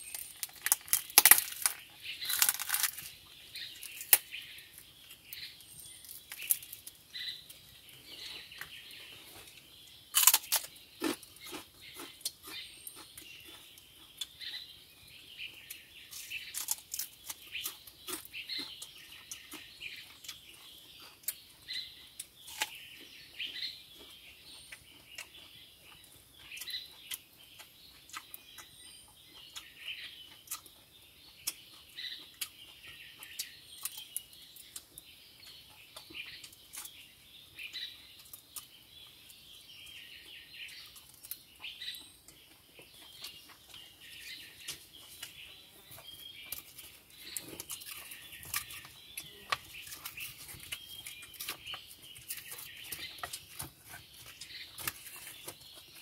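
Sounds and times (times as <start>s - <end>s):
sharp clicks and crackles: 0.0s - 3.2s
birds chirping: 0.0s - 56.0s.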